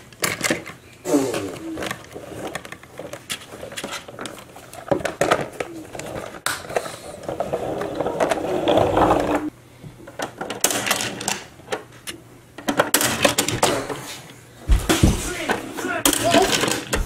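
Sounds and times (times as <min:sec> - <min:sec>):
plastic toys rattling: 0:00.1 - 0:09.5, 0:15.3 - 0:17.0.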